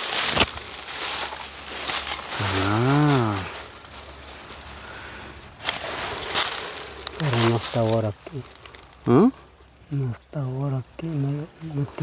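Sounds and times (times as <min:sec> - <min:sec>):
leaves and brush rustling: 0:00.0 - 0:12.0
low voice-like hum: 0:02.3 - 0:05.4.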